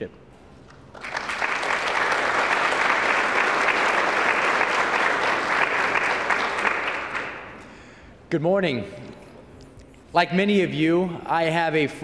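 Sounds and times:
audience applauding: 0.7s - 7.7s.

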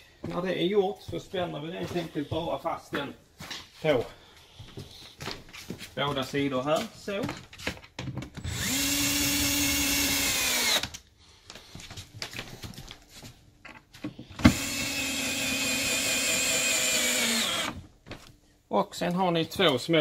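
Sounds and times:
cordless drill driving screws: 8.4s - 11.0s, 14.4s - 17.8s.

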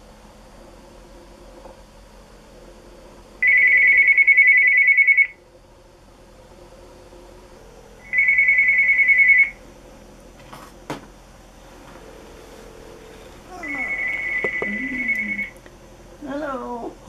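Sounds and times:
telephone ringing: 3.4s - 5.3s, 8.1s - 9.6s, 13.0s - 15.5s.

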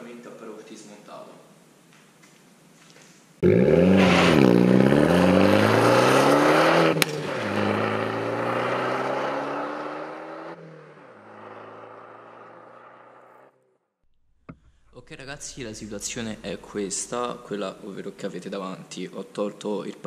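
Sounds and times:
car engine revving and accelerating: 3.4s - 13.6s.

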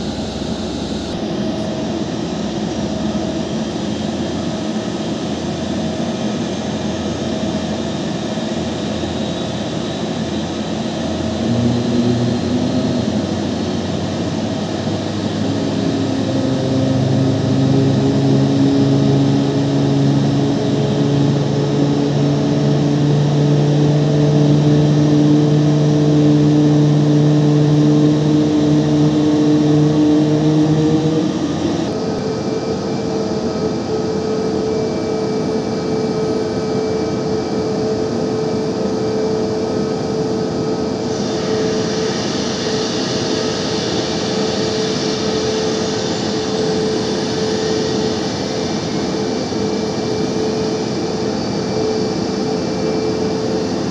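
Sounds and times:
deep steady drone: 0.0s - 34.6s
jet engine spooling up: 0.0s - 53.9s
steady hum: 0.0s - 53.9s.

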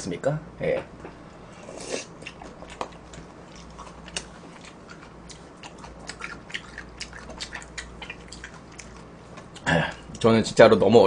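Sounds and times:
person chewing with mouth clicks: 1.6s - 10.2s.

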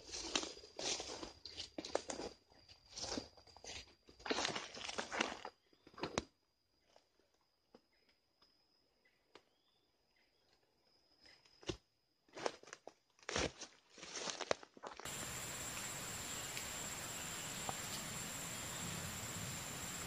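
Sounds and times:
footsteps crunching through dry leaves: 0.0s - 1.6s, 14.0s - 20.0s.

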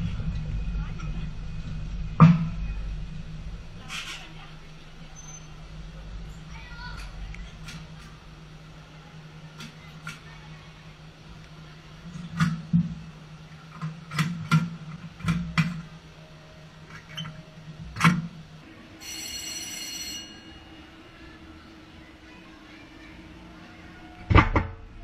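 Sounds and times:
roller coaster machinery hum: 0.0s - 25.0s
brief high ringing tone: 18.9s - 20.8s.

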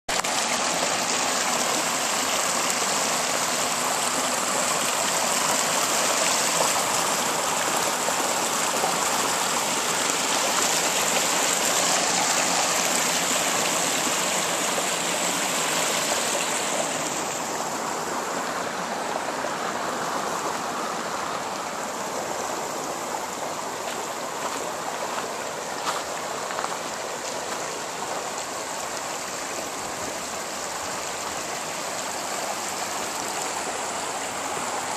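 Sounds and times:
river rushing over rocks: 0.1s - 34.9s.

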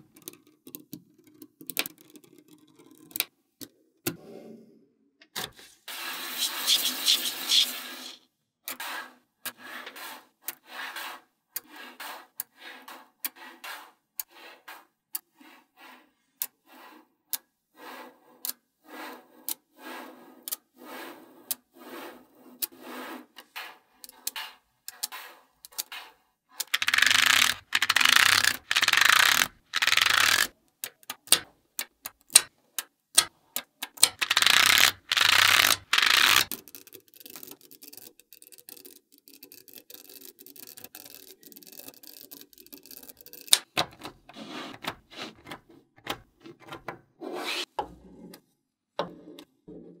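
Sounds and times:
balls rattling clatter: 26.6s - 30.5s, 34.0s - 43.8s
magnetic balls clicking together: 26.6s - 32.5s, 33.2s - 43.8s.

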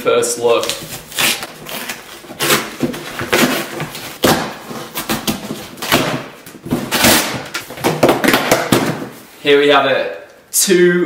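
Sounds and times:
cardboard box being torn open: 0.6s - 6.1s.

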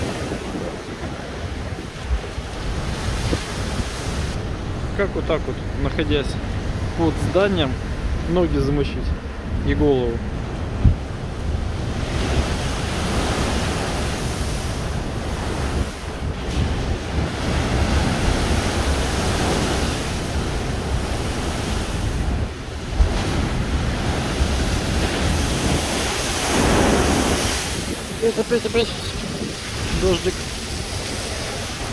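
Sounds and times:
wind buffeting microphone: 0.0s - 31.9s
surf breaking against seawall: 10.7s - 31.9s.

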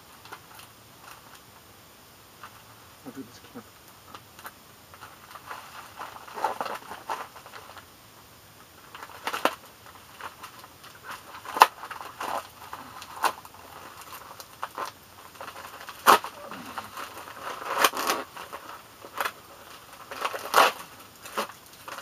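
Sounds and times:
paper crackles: 4.1s - 7.9s, 8.8s - 22.0s
paper envelope tearing and crinkling: 10.2s - 22.0s.

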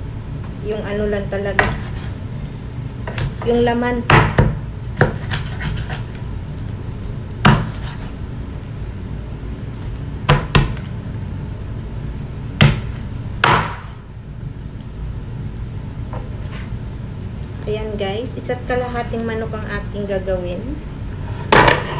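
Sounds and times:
steady low hum: 0.0s - 21.9s
knife chopping on wooden board: 1.5s - 2.1s, 4.1s - 6.2s, 7.4s - 8.1s, 10.3s - 10.8s, 12.6s - 14.0s.

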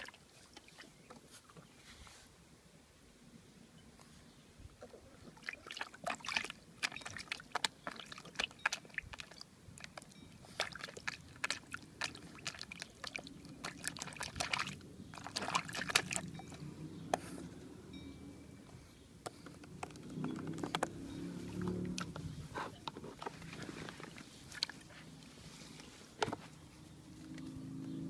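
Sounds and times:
puppy splashing water in tub: 0.0s - 1.3s, 5.2s - 17.1s, 19.8s - 25.2s.

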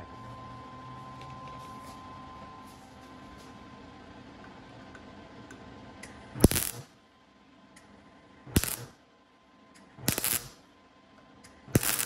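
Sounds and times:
welding arc crackling: 6.4s - 6.9s, 8.5s - 9.0s, 10.0s - 10.6s, 11.7s - 12.0s.

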